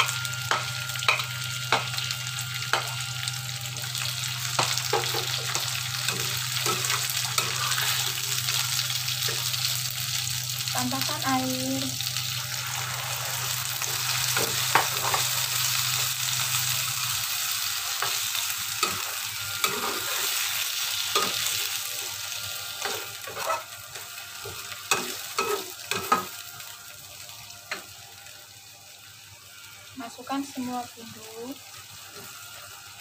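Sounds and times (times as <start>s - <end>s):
food sizzling in a wok: 0.0s - 33.0s
metal spatula scraping pan: 4.6s - 8.3s, 18.8s - 20.5s, 22.8s - 23.7s.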